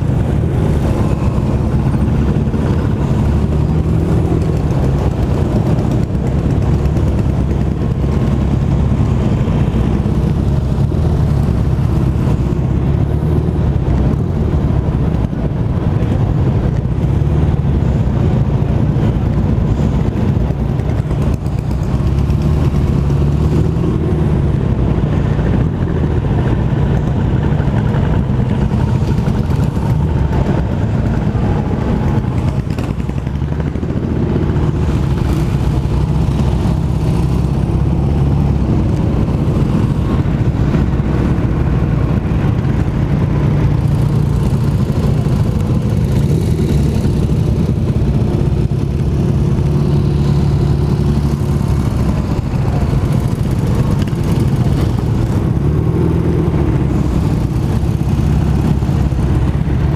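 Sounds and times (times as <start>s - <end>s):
scooter and motorcycle engines droning: 0.0s - 59.9s.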